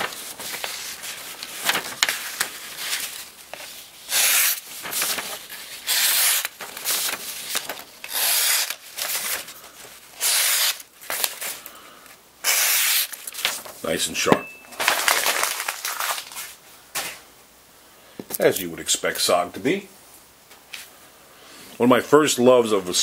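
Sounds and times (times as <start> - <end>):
knife slicing paper: 0.0 - 9.4, 10.2 - 11.6, 12.4 - 13.6
paper rustling: 0.0 - 11.7, 12.5 - 17.2.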